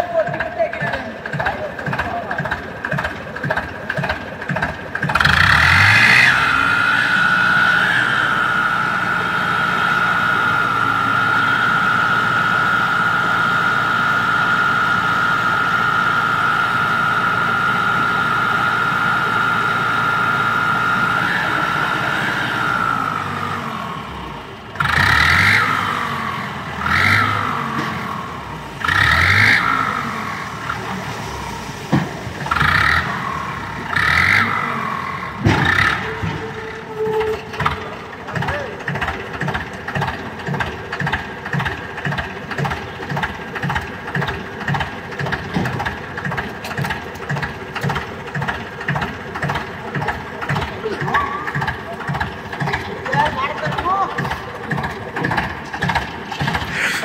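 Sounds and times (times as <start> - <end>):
tractor engine revving: 0.0 - 57.0
high hydraulic whine: 56.3 - 57.0.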